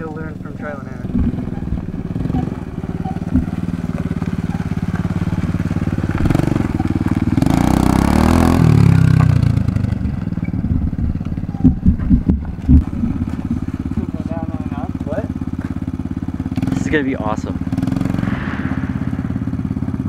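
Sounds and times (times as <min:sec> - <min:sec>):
dirt bike engine revving: 0:00.0 - 0:20.0
rush of noise: 0:17.9 - 0:20.0.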